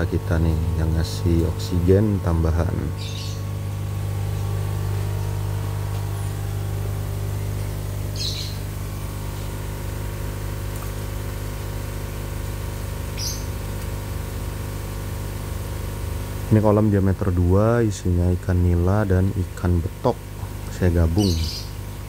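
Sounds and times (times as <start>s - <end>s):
air pumps humming: 0.0s - 22.0s
bird chirping: 2.9s - 3.5s, 8.1s - 8.7s, 13.2s - 13.5s, 21.1s - 21.7s.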